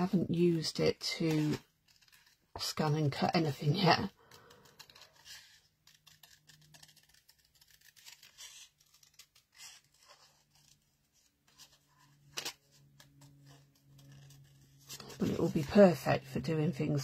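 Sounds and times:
scissors snipping cardstock: 1.2s - 10.8s.

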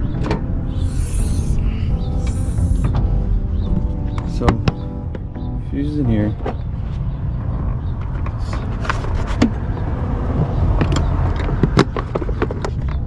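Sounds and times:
steady low rumble: 0.0s - 8.9s.

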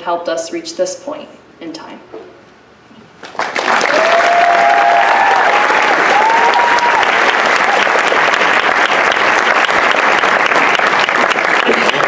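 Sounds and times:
audience applauding: 3.2s - 12.0s
audience cheering: 3.3s - 12.0s.

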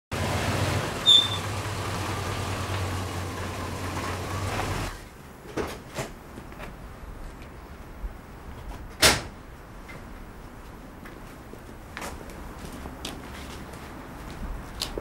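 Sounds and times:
car engine humming: 0.1s - 5.1s
high squeak: 1.0s - 1.5s.

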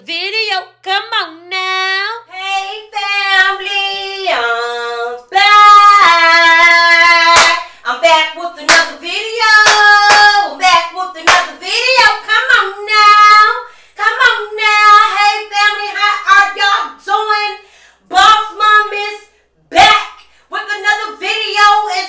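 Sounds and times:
woman singing high chant: 1.9s - 22.0s
sharp hand claps: 7.3s - 7.7s, 8.7s - 8.9s, 9.6s - 10.4s, 11.2s - 11.5s.

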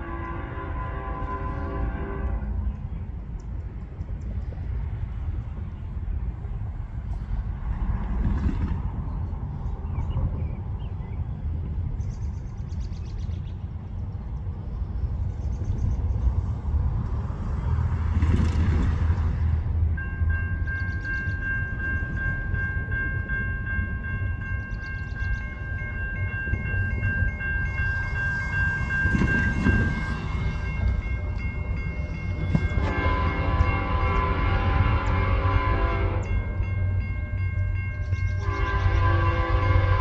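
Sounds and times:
locomotive horn blast: 0.0s - 2.8s, 27.6s - 31.3s, 32.4s - 37.0s, 38.3s - 40.0s
freight train rumble: 0.0s - 40.0s
crossing warning bell ringing: 19.6s - 40.0s.

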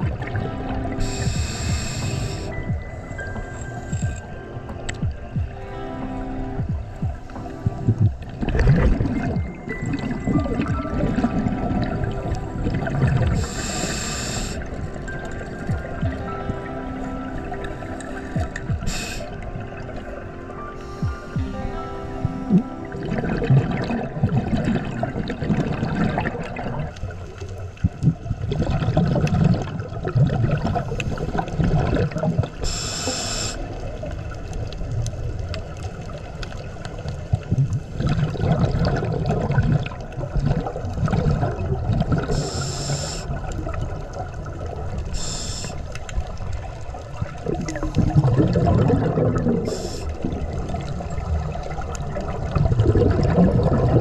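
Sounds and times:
scuba regulator bubbles gurgling: 0.0s - 54.0s.

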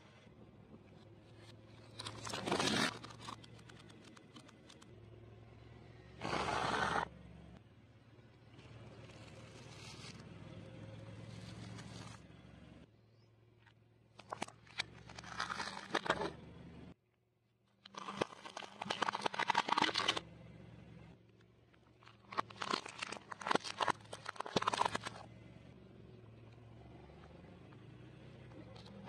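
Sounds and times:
tyre crushing crunchy snacks: 14.2s - 16.4s, 17.8s - 20.2s, 22.0s - 25.3s.

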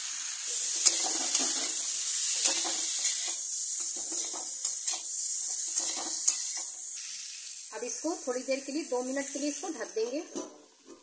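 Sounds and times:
vegetables sizzling in oil: 0.0s - 11.0s
metal spatula scraping pan: 0.7s - 6.7s.

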